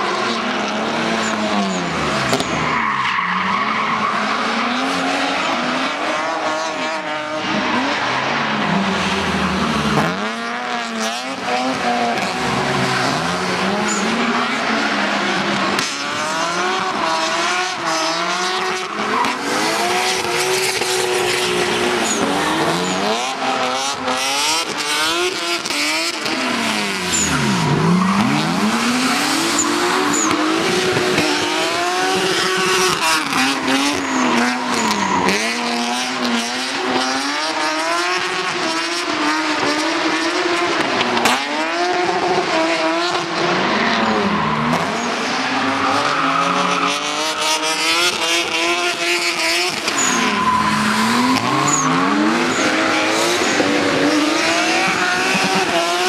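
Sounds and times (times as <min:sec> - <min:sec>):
car engine revving: 0:00.0 - 0:56.0
tyre squeal: 0:12.1 - 0:14.7, 0:17.9 - 0:24.1, 0:26.7 - 0:37.3, 0:49.6 - 0:55.7.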